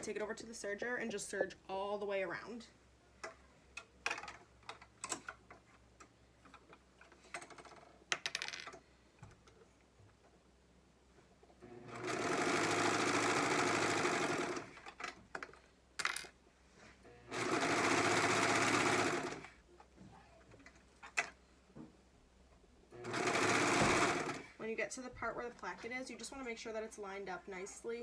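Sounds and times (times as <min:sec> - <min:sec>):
serger sewing machine running: 0:11.6 - 0:14.8, 0:17.3 - 0:19.5, 0:23.0 - 0:24.6.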